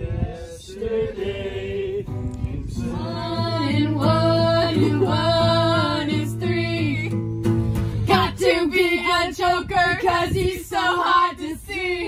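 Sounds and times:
group singing: 0.0 - 7.1, 8.0 - 12.0
strummed acoustic guitar: 2.1 - 9.2.

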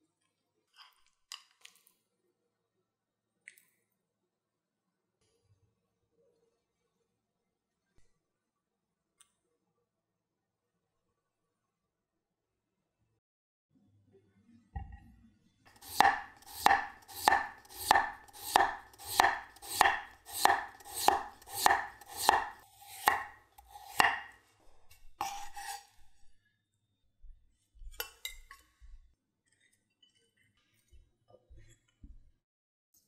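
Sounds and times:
knife slicing potato on board: 15.7 - 25.9
knife knocking on wooden board: 15.8 - 24.3
short scrape: 25.2 - 26.1.

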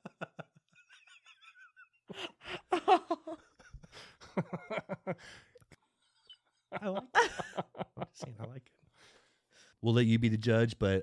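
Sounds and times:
people laughing: 0.0 - 5.3, 6.6 - 8.7.

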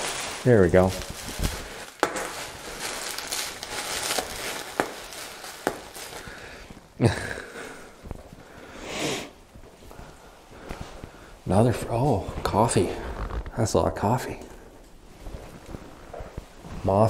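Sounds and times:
bubble wrap crinkling: 0.0 - 7.2.

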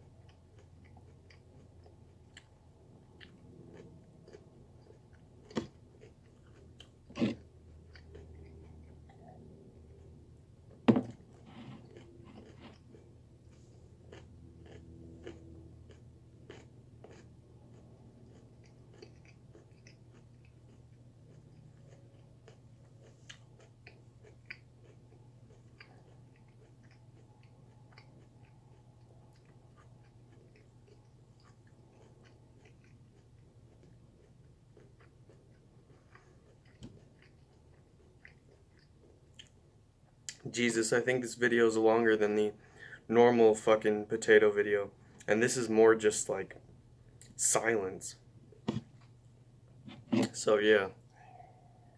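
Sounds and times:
chewing raw sweet potato: 0.0 - 40.6
low steady hum: 0.0 - 51.9.

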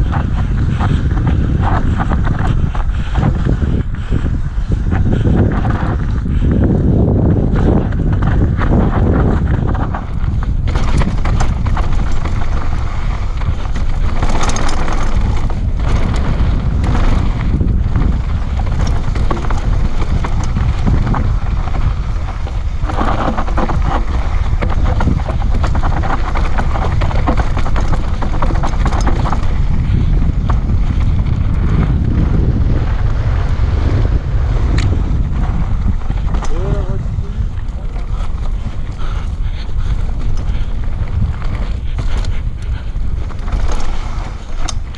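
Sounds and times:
bike rattling over bumps: 0.0 - 44.9
wind buffeting microphone: 0.0 - 44.9
tyres crunching over stones: 7.7 - 31.8.

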